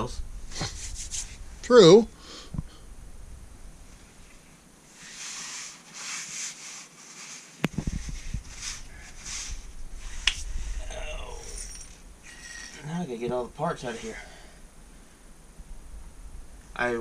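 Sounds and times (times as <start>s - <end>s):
metal parts clattering: 11.4s - 12.9s.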